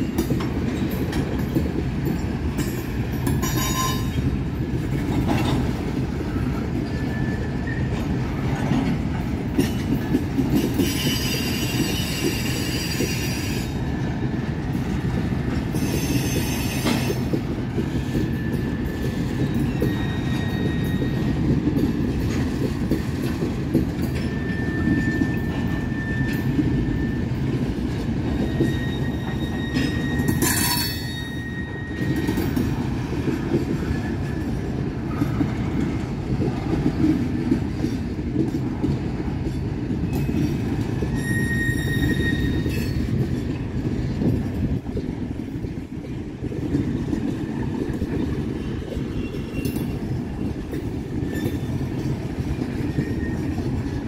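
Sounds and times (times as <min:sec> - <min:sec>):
high-pitched wheel squeals: 0:10.8 - 0:13.8, 0:15.8 - 0:17.2, 0:18.0 - 0:21.4, 0:24.2 - 0:27.4, 0:28.4 - 0:32.6, 0:40.1 - 0:43.0, 0:51.2 - 0:51.8, 0:52.8 - 0:53.7.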